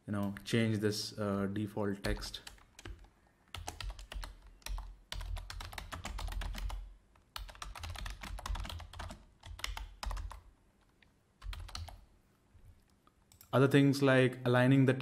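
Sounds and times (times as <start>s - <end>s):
typing on computer keyboard: 2.0s - 10.4s, 11.4s - 12.0s.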